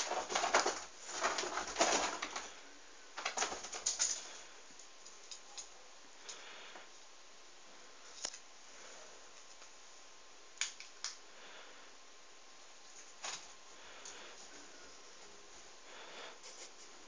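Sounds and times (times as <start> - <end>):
claws scrabbling: 0.0 - 2.6, 3.2 - 5.7.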